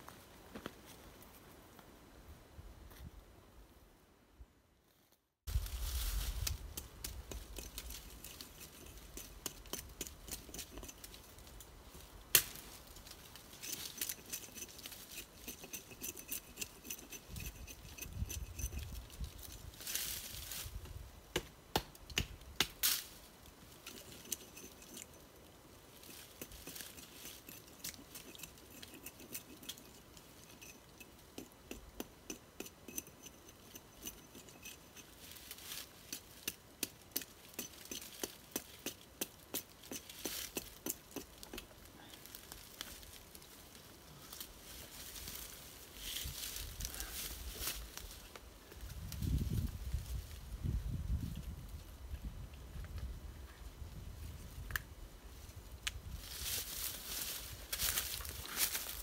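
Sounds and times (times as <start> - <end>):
footsteps crunching on rocky ground: 0.0 - 1.1, 56.2 - 59.0
stones and gear clicking: 6.4 - 11.7, 13.4 - 19.6, 26.0 - 35.2, 35.8 - 41.8.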